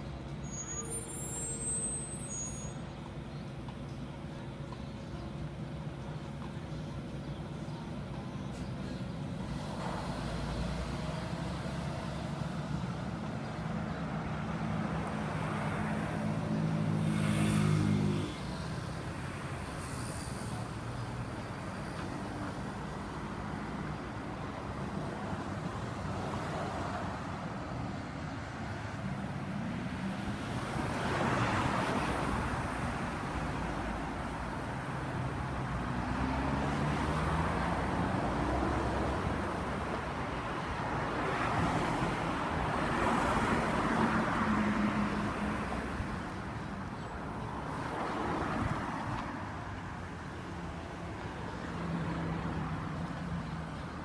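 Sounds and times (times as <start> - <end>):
cars driving past: 9.4 - 54.0.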